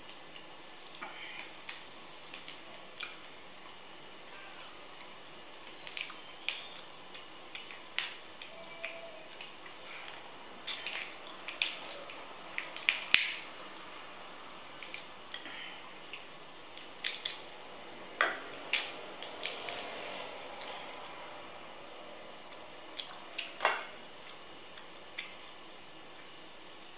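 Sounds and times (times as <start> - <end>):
crab shell cracking: 1.2 - 4.0, 5.5 - 9.8, 10.6 - 17.5, 18.2 - 20.0.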